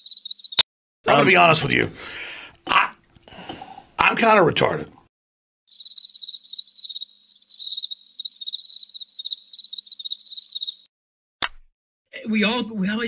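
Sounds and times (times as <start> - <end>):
crickets chirping: 0.0 - 0.6, 5.7 - 10.9.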